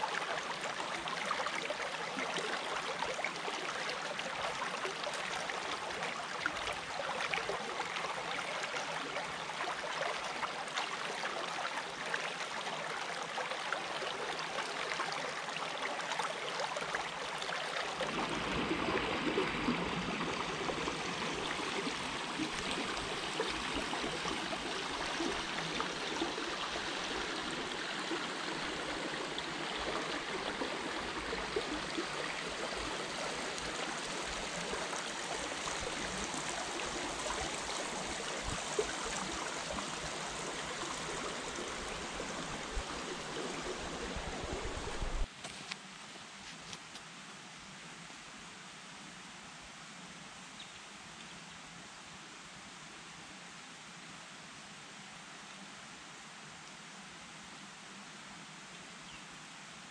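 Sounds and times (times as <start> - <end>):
creek water gurgling over rocks: 0.0 - 45.3.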